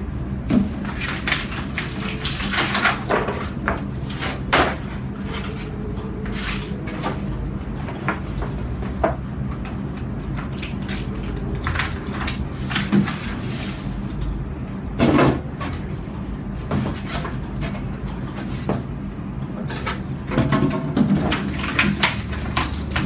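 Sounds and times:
paper sheet rustling: 0.5 - 9.0, 10.2 - 14.3, 21.3 - 23.0.

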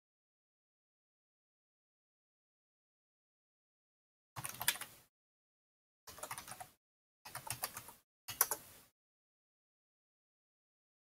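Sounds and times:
computer keyboard typing: 4.4 - 4.9, 6.1 - 8.7.

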